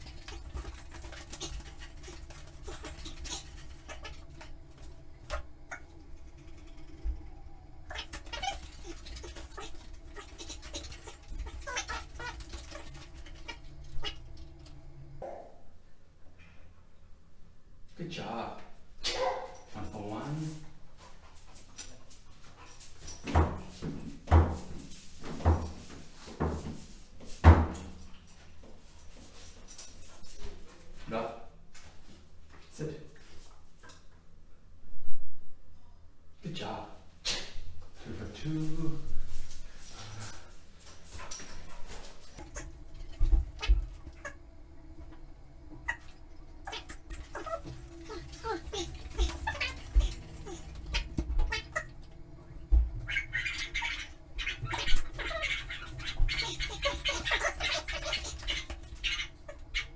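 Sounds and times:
bed frame knocking against tiled wall: 23.3s - 26.8s, 27.4s - 28.0s.

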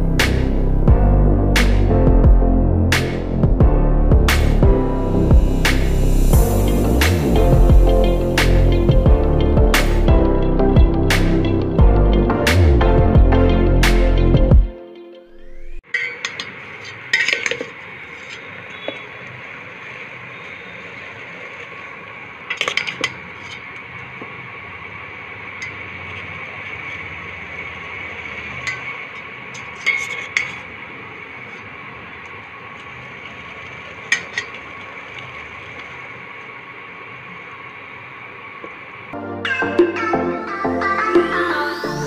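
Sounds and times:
music with a beat: 0.0s - 15.2s, 39.2s - 42.0s
kitchen hum: 15.3s - 41.6s
metal spatula scraping pot: 15.9s - 19.1s.

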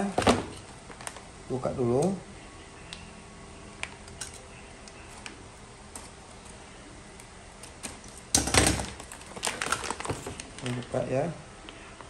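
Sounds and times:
plastic wrapping crinkling: 0.2s - 1.3s, 7.6s - 11.8s.

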